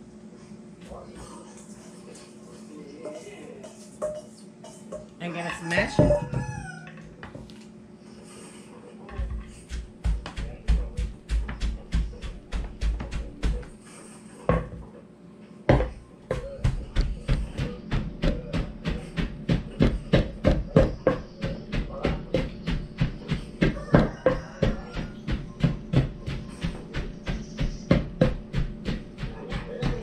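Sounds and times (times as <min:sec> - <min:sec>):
pestle pounding in mortar: 0:09.2 - 0:13.8, 0:15.7 - 0:30.0.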